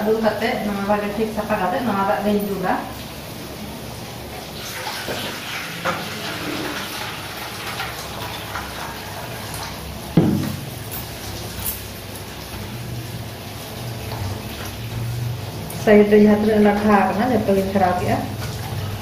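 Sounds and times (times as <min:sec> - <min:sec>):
water pouring into metal bowl: 0:04.4 - 0:15.8
sharp knock: 0:10.2 - 0:10.6.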